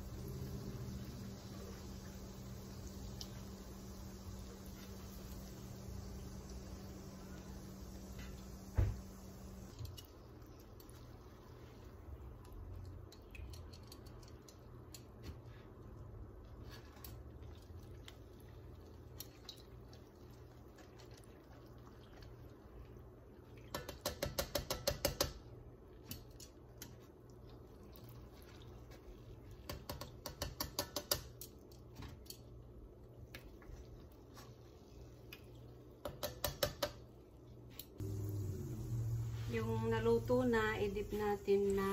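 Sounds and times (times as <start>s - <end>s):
low steady hum: 0.0s - 23.7s, 37.0s - 41.9s.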